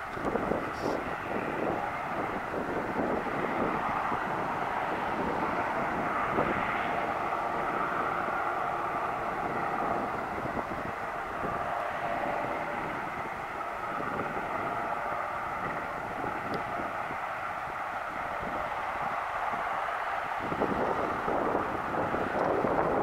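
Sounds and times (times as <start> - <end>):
helicopter hovering: 0.0 - 23.0.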